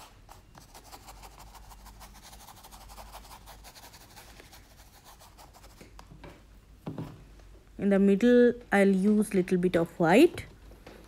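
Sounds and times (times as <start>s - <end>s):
paintbrush scratching on canvas: 0.0s - 5.8s.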